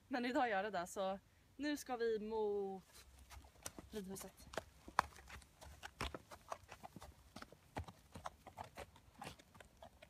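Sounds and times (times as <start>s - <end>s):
hooves on snow: 2.7s - 10.0s.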